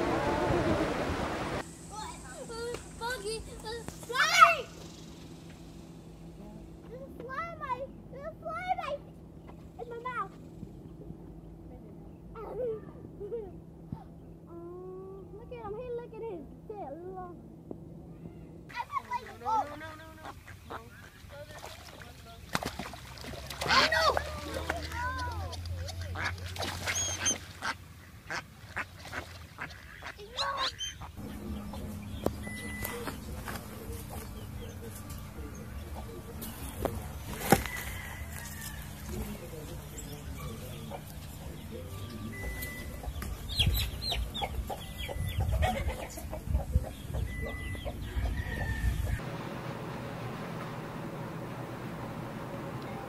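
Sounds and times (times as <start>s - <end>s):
steady hiss: 0.0s - 6.4s
steady low hum: 0.0s - 53.0s
goose and ducklings calling: 19.6s - 21.3s, 23.6s - 24.6s, 25.8s - 36.8s, 40.1s - 49.2s
hen clucking: 19.6s - 21.4s, 25.9s - 49.2s
chicks peeping: 30.1s - 49.2s
faint chirps: 30.7s - 36.7s.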